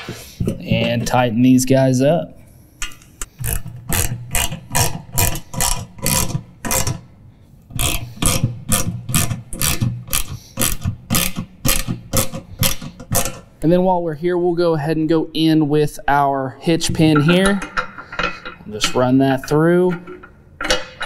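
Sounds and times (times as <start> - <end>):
ratchet wrench clicking: 3.3 - 7.0, 7.8 - 13.4.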